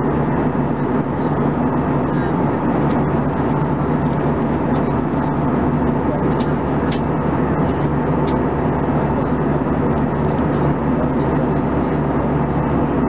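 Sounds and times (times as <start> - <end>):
airplane cabin engine drone: 0.0 - 13.0.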